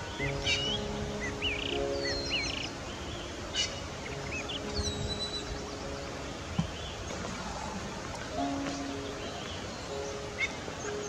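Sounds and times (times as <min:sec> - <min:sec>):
birds chirping: 0:00.0 - 0:11.0
soft held music tones: 0:00.0 - 0:11.0.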